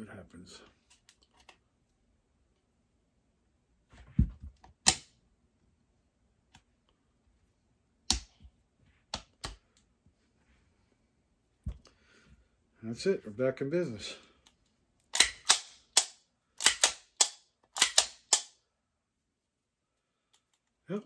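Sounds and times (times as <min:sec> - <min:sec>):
pistol slide metal clicks: 0:15.1 - 0:18.6.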